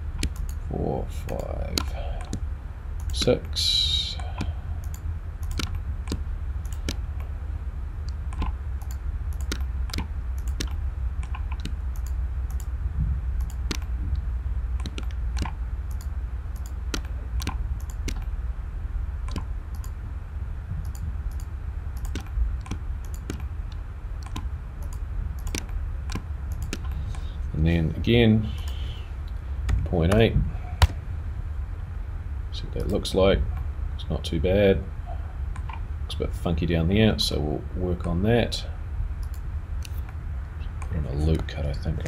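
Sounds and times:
steady low hum: 0.0 - 42.0
computer mouse clicking: 0.2 - 0.6, 1.2 - 3.4, 4.2 - 7.3, 8.0 - 12.7, 13.4 - 14.2, 14.8 - 18.3, 19.3 - 20.0, 20.8 - 27.3, 28.5 - 29.0, 39.2 - 40.2.

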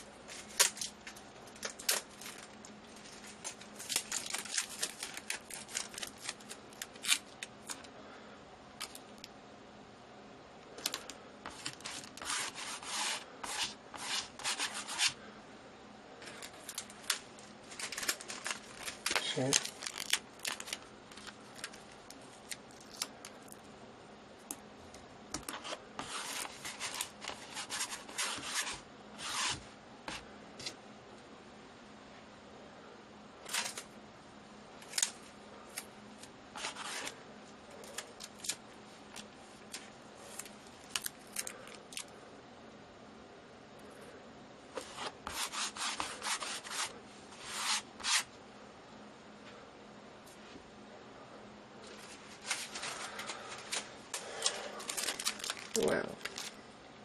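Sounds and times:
adhesive tape crackling: 0.3 - 7.9, 16.4 - 23.6, 54.4 - 56.6
hand rubbing tape: 10.8 - 15.2, 25.4 - 30.7, 44.8 - 48.3.

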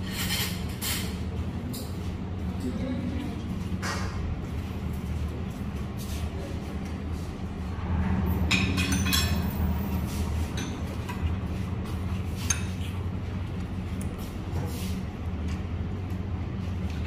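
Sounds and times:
steady low hum: 0.0 - 17.0
cutlery and crockery clinking: 8.5 - 9.5.

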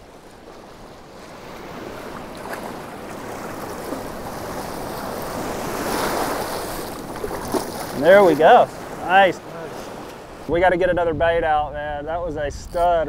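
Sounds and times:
small surf waves breaking: 0.0 - 12.1.

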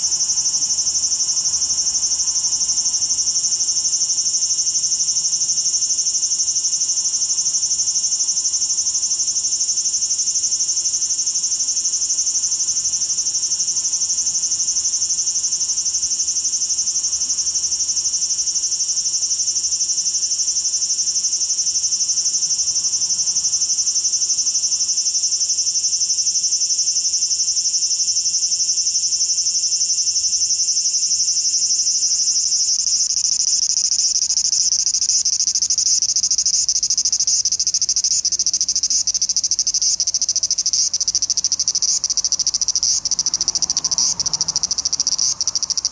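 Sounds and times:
cicada singing: 0.0 - 45.9.

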